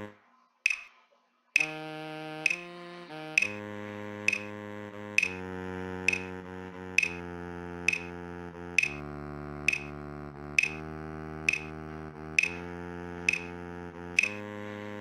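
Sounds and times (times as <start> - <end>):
synthesized baritone saxophone melody: 0.0 - 0.2, 1.6 - 15.0
metronome clicking: 0.7 - 0.9, 1.6 - 1.8, 2.4 - 3.6, 4.3 - 4.5, 5.2 - 5.4, 6.1 - 6.3, 7.0 - 7.2, 7.9 - 8.1, 8.8 - 9.0, 9.7 - 10.0, 10.6 - 10.8, 11.5 - 11.8, 12.4 - 12.6, 13.3 - 13.6, 14.2 - 14.4.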